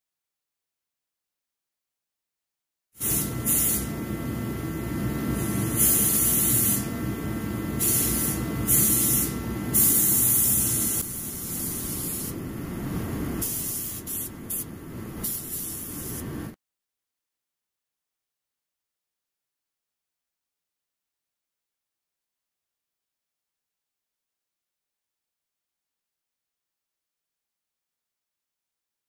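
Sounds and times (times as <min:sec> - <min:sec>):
compressed air blasts hissing: 0:03.0 - 0:04.0, 0:05.3 - 0:06.9, 0:07.8 - 0:12.4, 0:13.0 - 0:16.5
low rumble with hum: 0:03.1 - 0:16.6.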